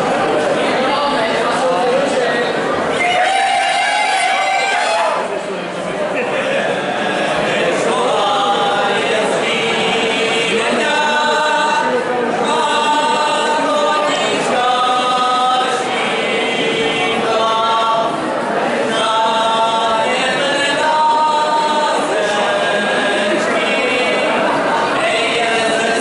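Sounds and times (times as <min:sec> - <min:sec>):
men singing unaccompanied: 0:06.7 - 0:26.0.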